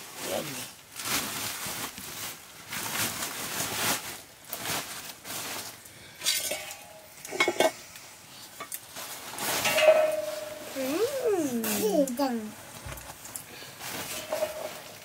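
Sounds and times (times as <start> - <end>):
plastic sack rustling: 0.0 - 15.0
metal clinks: 9.6 - 11.1.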